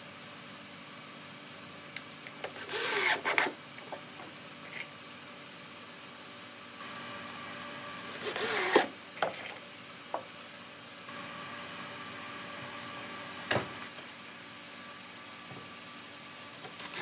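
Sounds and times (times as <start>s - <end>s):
cordless drill driving screw: 2.6s - 3.5s, 8.1s - 8.9s, 16.8s - 17.0s.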